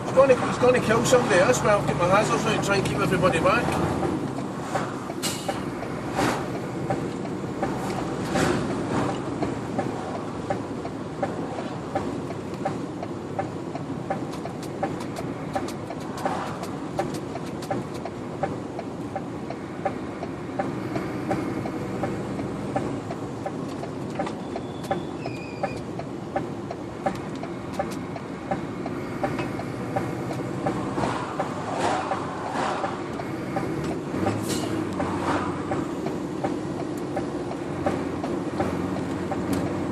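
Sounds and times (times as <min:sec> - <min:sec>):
engine and road noise: 0:00.0 - 0:39.9
regular clicking: 0:02.2 - 0:39.9.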